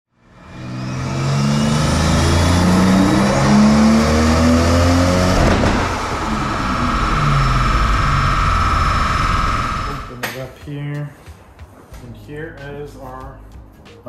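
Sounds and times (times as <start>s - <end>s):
car engine revving on a dyno: 0.2s - 10.1s.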